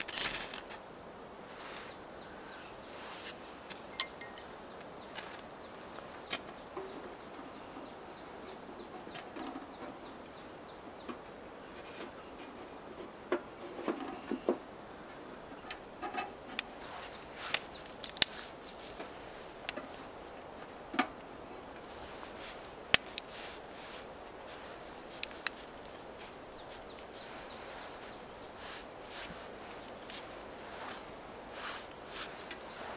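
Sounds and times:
dry kindling cracking and snapping: 0.0s - 0.8s, 15.7s - 20.0s, 21.7s - 23.3s, 24.0s - 28.3s
sticks rustling: 0.0s - 0.8s, 16.5s - 20.1s, 21.8s - 32.9s.

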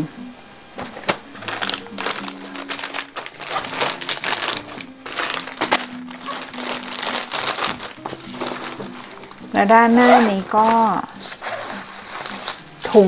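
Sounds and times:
soft background music: 0.0s - 13.0s
plastic bags crinkling: 0.8s - 13.0s.

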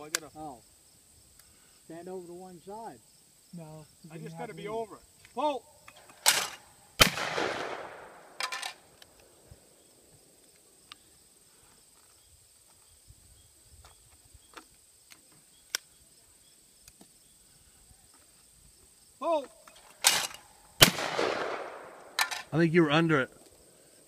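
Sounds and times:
gunshot echo: 6.2s - 8.6s, 20.0s - 22.3s.

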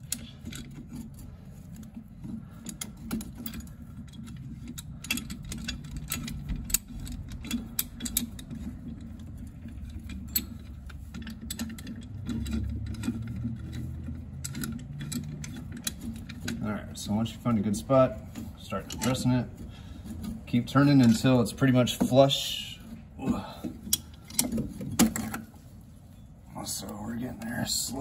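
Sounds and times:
metal clicks and clinks: 2.6s - 16.6s.

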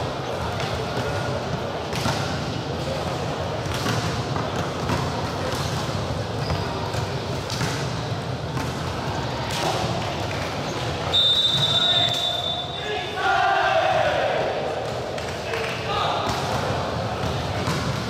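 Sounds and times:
many voices talking: 0.0s - 18.0s.

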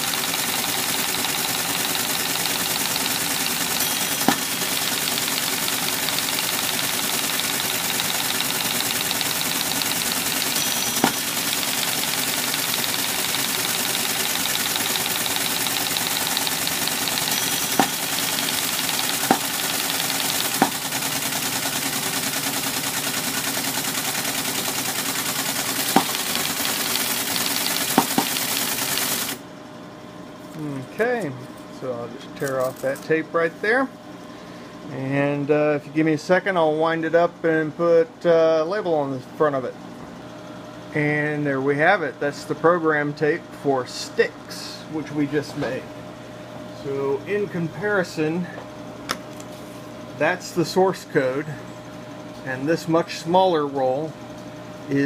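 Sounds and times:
paper tape punch chattering: 0.0s - 29.4s
sharp mechanical clacks: 0.0s - 29.4s.

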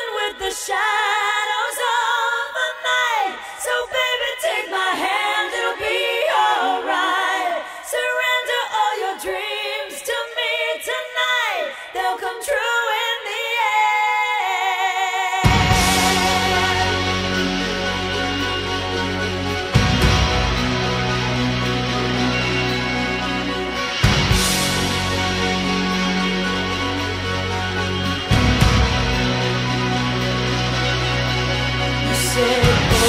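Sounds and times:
woman singing with vibrato: 0.0s - 18.7s, 32.0s - 33.0s.

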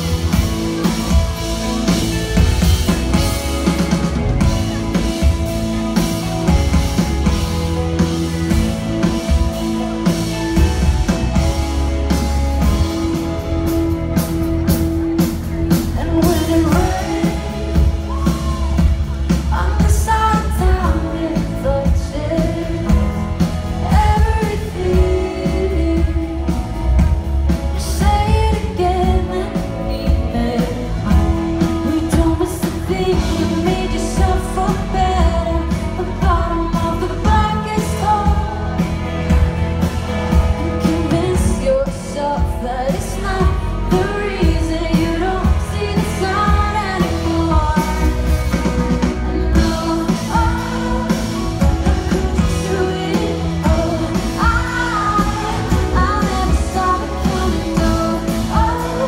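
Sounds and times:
live pop-rock band: 0.0s - 59.0s
woman singing lead vocal: 14.6s - 59.0s.

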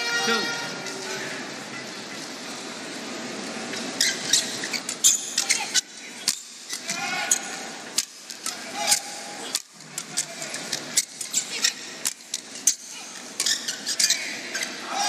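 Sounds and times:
shoes squeaking on court: 3.8s - 6.9s, 10.9s - 14.8s.

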